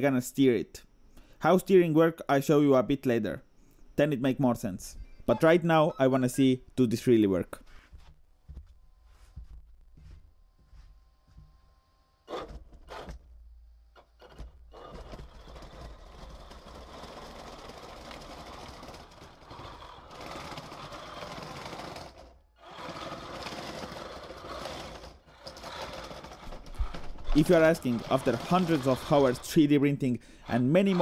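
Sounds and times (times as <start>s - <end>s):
toy tank motors whirring: 12.2s - 13.2s, 13.9s - 31.0s
track links rattling: 14.8s - 29.7s.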